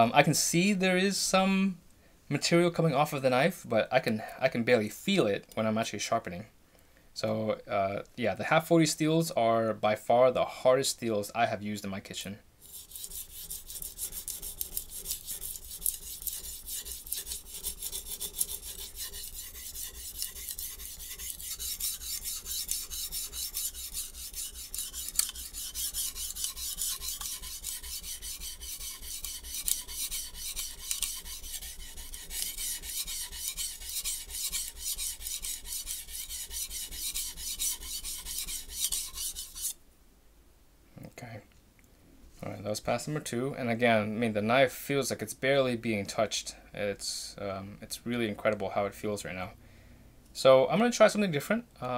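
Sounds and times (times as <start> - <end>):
knife scraping on sharpening stone: 12.6 - 39.8.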